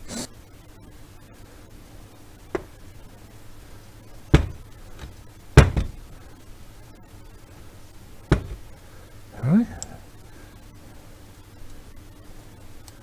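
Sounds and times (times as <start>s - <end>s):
metal parts knocking on workbench: 8.3s - 8.7s.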